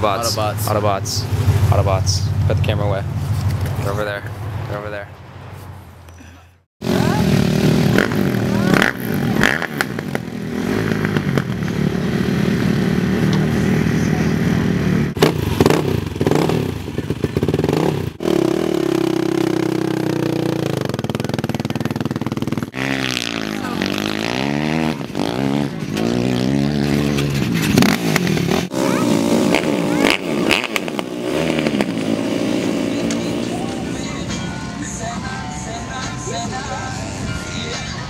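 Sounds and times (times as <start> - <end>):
off-road engines revving: 0.0 - 5.1, 6.2 - 35.4.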